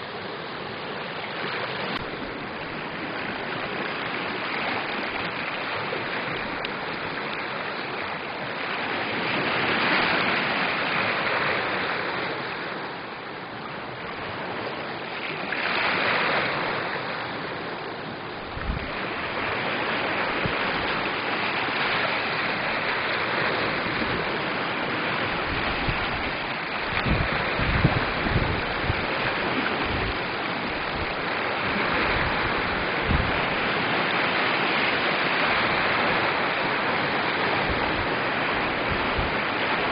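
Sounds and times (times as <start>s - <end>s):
waves lapping on shore: 0.0s - 39.9s
wind buffeting microphone: 15.9s - 39.9s.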